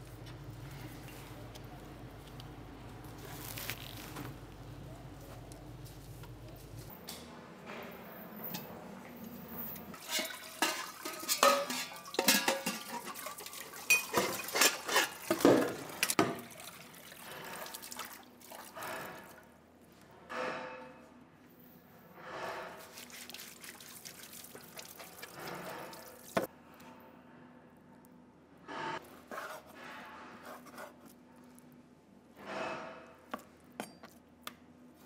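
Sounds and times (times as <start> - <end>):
metal pots and dishes clinking: 9.6 - 16.4.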